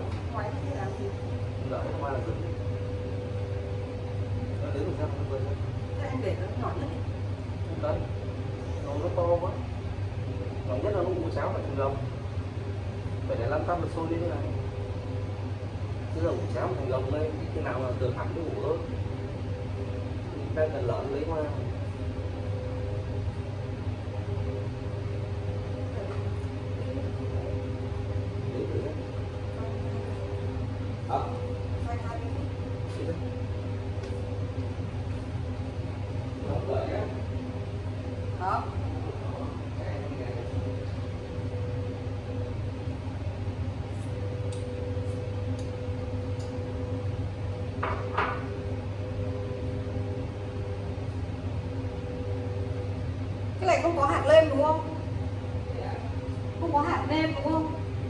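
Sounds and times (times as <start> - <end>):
fan-like hiss: 0.0 - 58.0
induction cooktop humming: 0.0 - 58.0.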